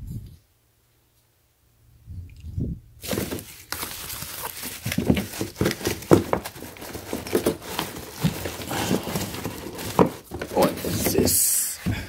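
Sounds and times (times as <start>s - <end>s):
plastic bags crinkling: 3.0s - 11.6s.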